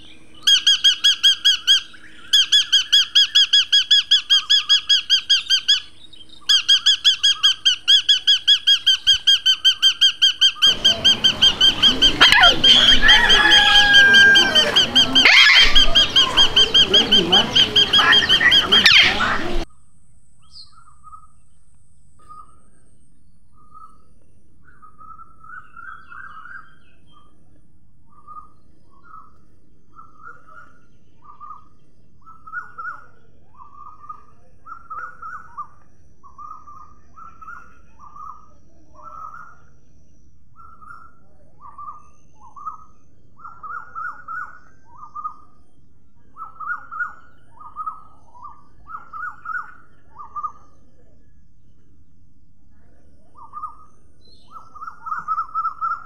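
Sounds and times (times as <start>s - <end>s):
cockatoos calling harshly: 0.0s - 19.7s, 46.3s - 50.8s, 53.4s - 56.0s.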